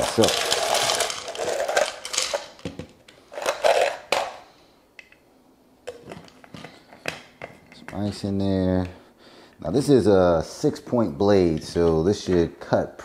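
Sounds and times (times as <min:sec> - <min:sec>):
ice cubes rattling into plastic jar: 0:00.0 - 0:02.6, 0:03.4 - 0:04.3.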